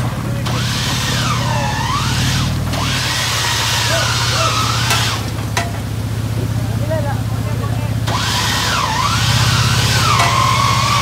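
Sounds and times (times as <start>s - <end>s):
vehicle engine running: 0.0s - 11.0s
whining tone swooping in pitch: 8.1s - 11.0s.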